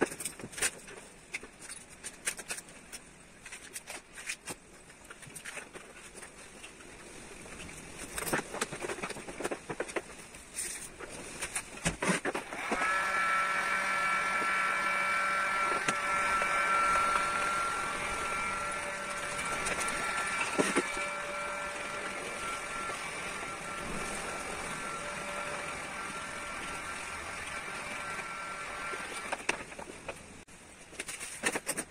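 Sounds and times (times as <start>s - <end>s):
heat gun fan whine: 12.4s - 29.8s.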